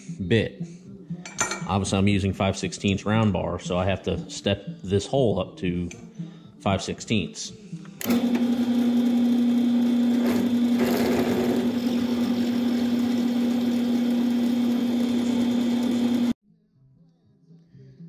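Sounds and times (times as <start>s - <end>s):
drill press drilling steel: 8.0s - 16.4s.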